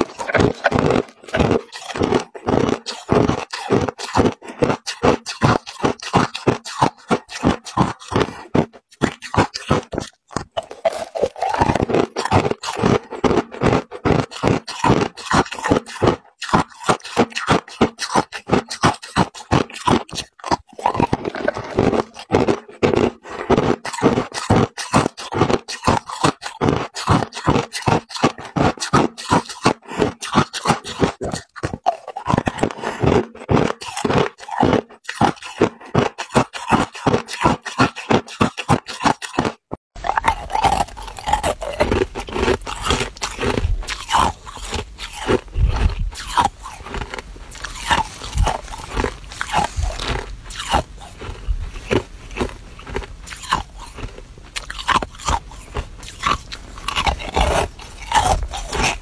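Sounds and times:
ice cubes crunched by teeth: 0:00.0 - 0:59.0.

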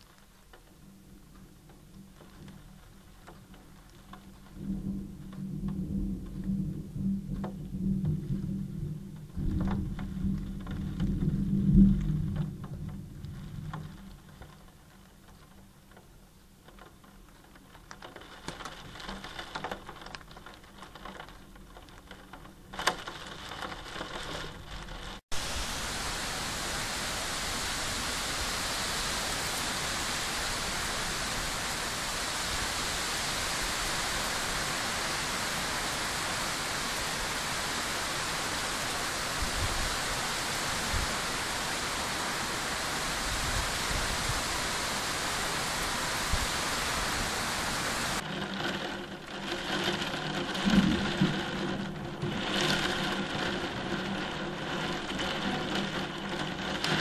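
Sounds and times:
heavy rain hiss: 0:00.0 - 0:16.7, 0:22.8 - 0:57.0
raindrops tapping on glass: 0:00.0 - 0:25.2.

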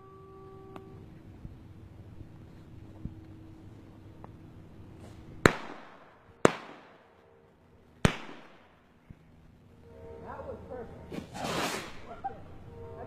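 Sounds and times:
firecracker bangs with echo: 0:05.4 - 0:07.2, 0:08.0 - 0:08.8.

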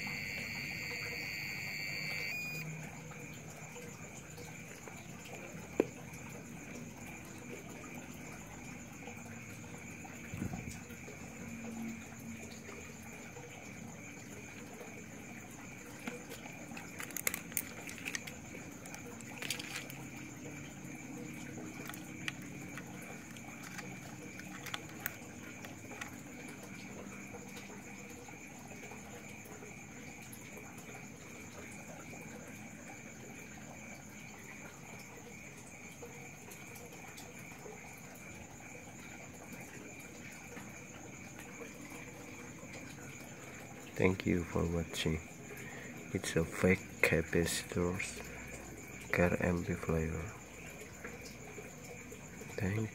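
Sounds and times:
faint high-pitched whine: 0:00.0 - 0:06.5.

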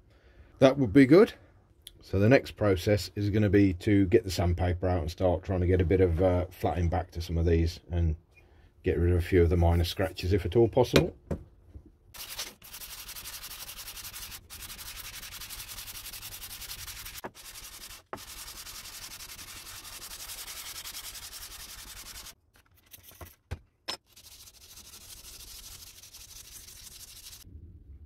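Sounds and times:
metal plane rubbed on sandpaper: 0:12.2 - 0:22.4, 0:24.1 - 0:27.4.

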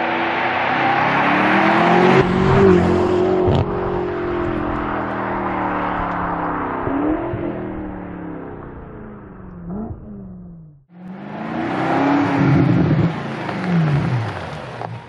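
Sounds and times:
car engine accelerating: 0:00.0 - 0:15.0.

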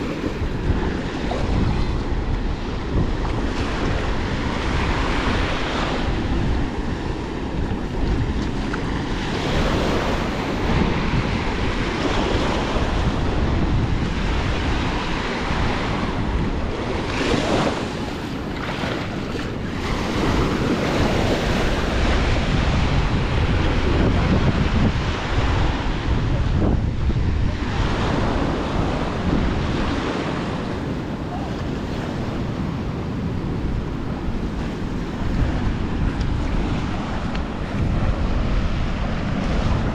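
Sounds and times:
small waves washing on beach: 0:00.0 - 0:39.9
wind on microphone: 0:00.0 - 0:39.9.

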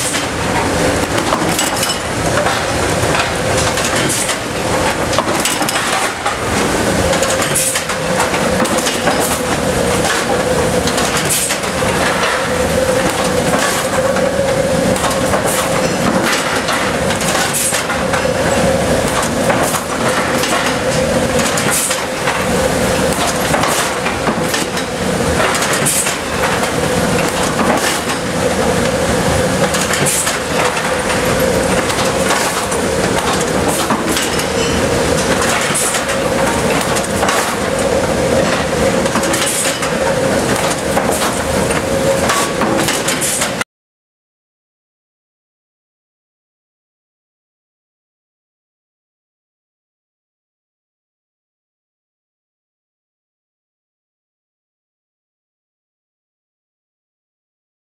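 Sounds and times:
machine hum: 0:00.0 - 0:42.9.

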